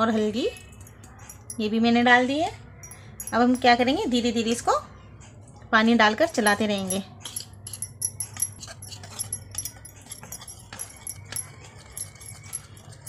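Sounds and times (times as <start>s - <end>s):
whisk scraping ceramic bowl: 6.3s - 13.0s.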